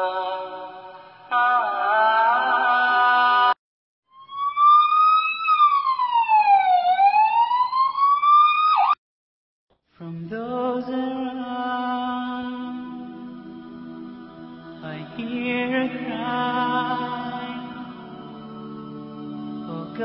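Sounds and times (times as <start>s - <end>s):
emergency siren wailing: 1.3s - 9.0s.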